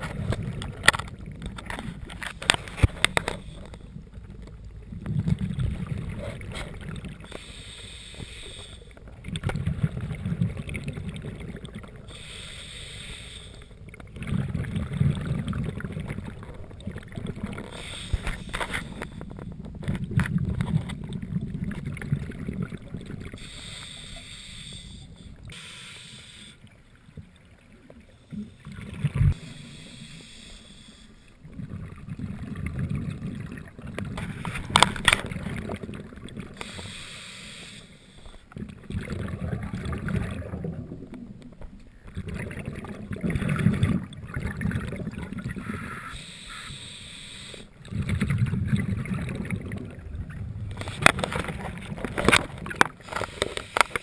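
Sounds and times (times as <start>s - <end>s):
exhaled bubbles rumbling: 0.0s - 7.4s, 8.9s - 12.2s, 13.7s - 23.6s, 27.0s - 29.9s, 31.4s - 36.7s, 38.5s - 46.1s, 47.8s - 53.2s
hissing regulator inhalations: 7.2s - 9.0s, 12.1s - 13.8s, 17.7s - 19.4s, 23.4s - 26.6s, 29.4s - 31.4s, 36.6s - 38.5s, 46.1s - 47.8s, 53.1s - 54.0s.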